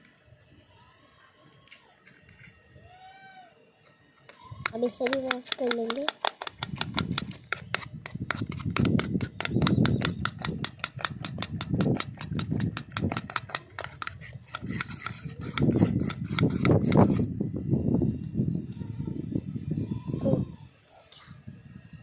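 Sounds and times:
metal utensil scraping a bowl: 4.6s - 17.3s.

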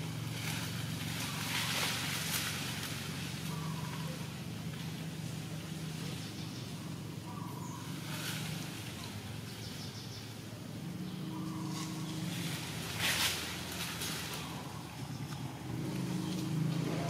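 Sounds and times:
low motor hum: 0.0s - 17.0s
scratchy rustle: 11.7s - 14.6s.

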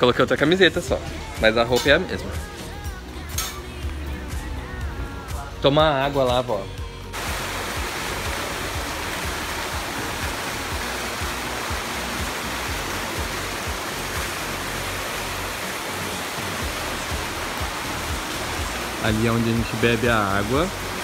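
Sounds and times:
fountain water splashing: 7.2s - 21.0s.

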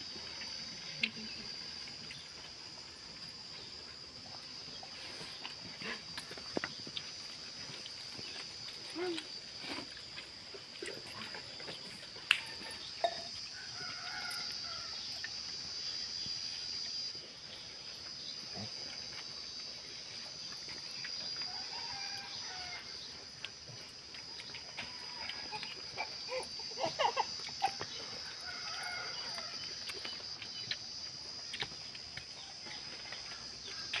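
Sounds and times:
high-pitched insect drone: 0.0s - 23.1s, 24.8s - 34.0s
rooster crowing: 13.4s - 15.1s, 21.4s - 23.0s, 28.3s - 29.7s.

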